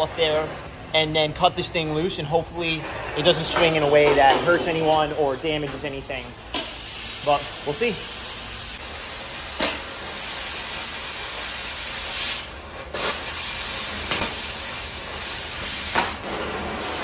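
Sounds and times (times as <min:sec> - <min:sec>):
cutting torch hissing: 0:06.5 - 0:17.0
sharp pops and crackles: 0:09.5 - 0:10.1, 0:12.1 - 0:14.6, 0:15.2 - 0:16.3.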